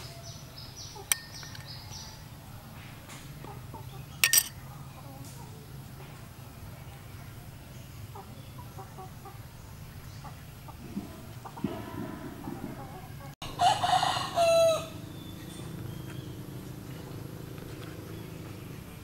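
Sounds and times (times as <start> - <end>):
rooster crowing: 11.6 - 15.1.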